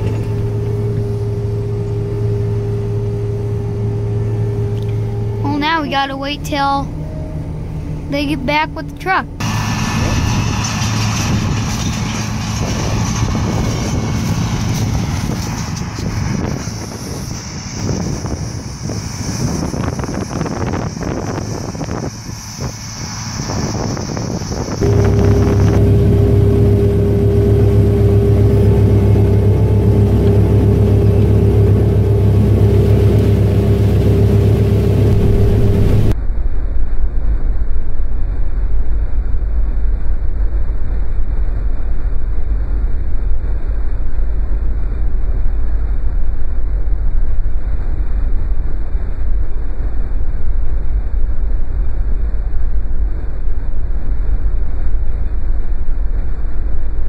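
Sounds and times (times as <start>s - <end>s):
combine harvester droning: 0.0s - 36.5s.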